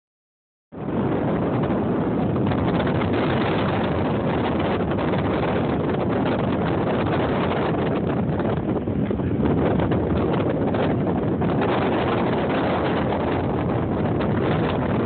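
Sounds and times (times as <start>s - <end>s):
wind buffeting microphone: 0.7s - 15.0s.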